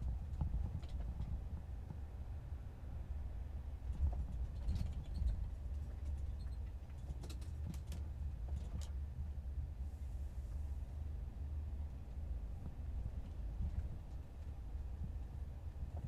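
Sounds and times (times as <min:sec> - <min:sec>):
light clicks and rattles: 0:00.0 - 0:02.0, 0:03.8 - 0:09.0, 0:11.8 - 0:16.0
van road rumble: 0:00.0 - 0:16.0.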